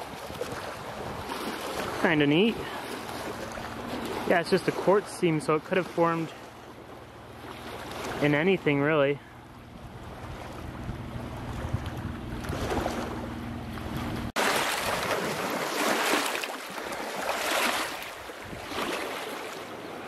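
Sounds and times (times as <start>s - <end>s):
wind rumbling on microphone: 0.0s - 4.8s, 9.3s - 15.8s, 16.8s - 20.0s
shallow water splashing: 0.0s - 20.0s
water lapping: 0.0s - 20.0s.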